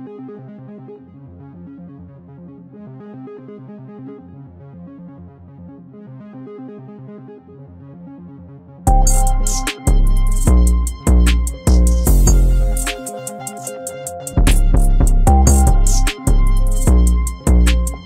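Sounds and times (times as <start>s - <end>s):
synthesizer melody over chords: 8.9s - 18.0s.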